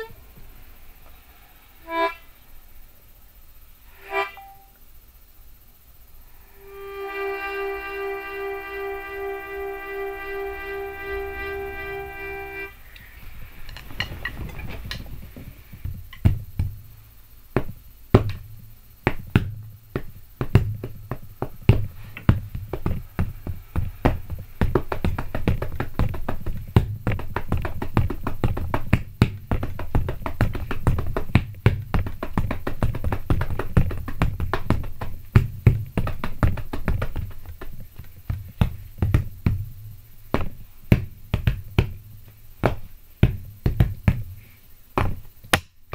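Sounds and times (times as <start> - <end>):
steady low hum: 0.0 - 45.9
harmonica chord: 1.8 - 2.4, 3.9 - 4.8, 6.5 - 12.8
drumsticks beating on pillows: 17.5 - 45.9.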